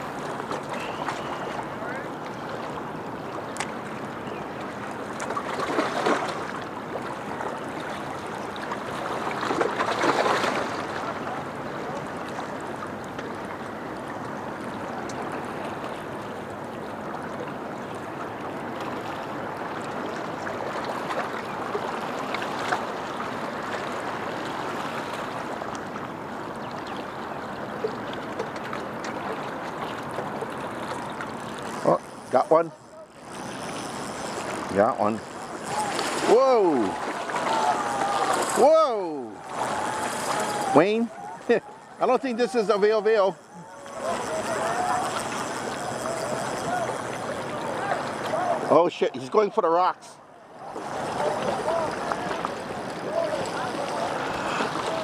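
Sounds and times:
ocean surf washing ashore: 0.0s - 55.0s
waves breaking: 0.0s - 55.0s.

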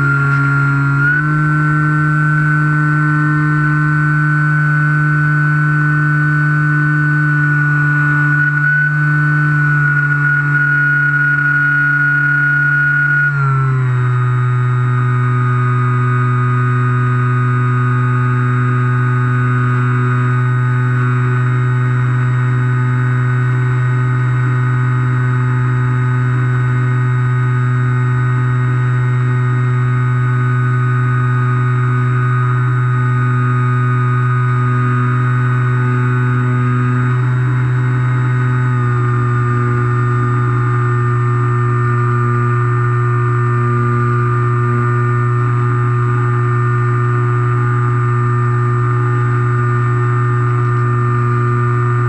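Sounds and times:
electric motor and propeller droning: 0.0s - 52.0s.

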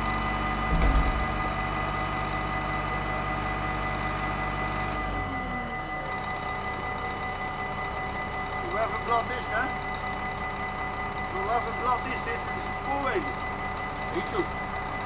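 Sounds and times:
low engine hum: 0.0s - 11.8s
short low thump: 0.7s - 1.9s.

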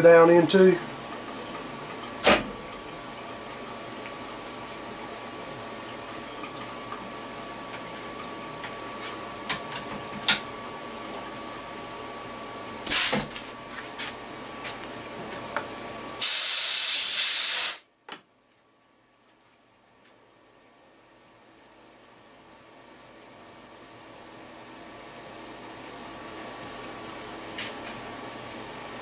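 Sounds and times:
steady machine hum: 0.0s - 16.8s, 17.8s - 29.0s
compressed air hissing: 12.9s - 13.3s, 16.2s - 17.8s.

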